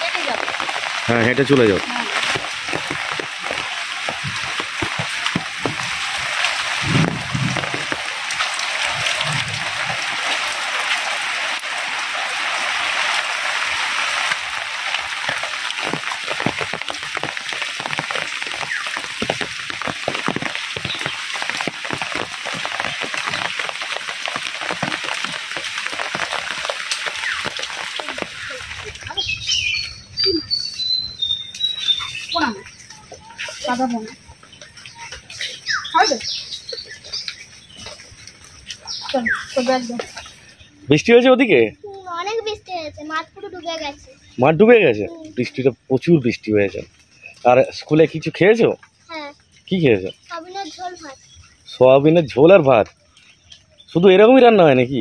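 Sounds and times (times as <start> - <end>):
heavy rain falling: 0.0 - 55.0
bird chirping high notes: 29.1 - 33.4.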